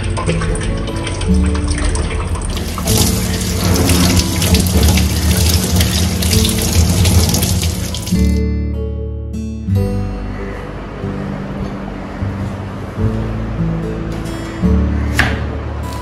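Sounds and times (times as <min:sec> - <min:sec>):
tap water running into sink: 0:00.0 - 0:08.4
background music: 0:00.0 - 0:16.0.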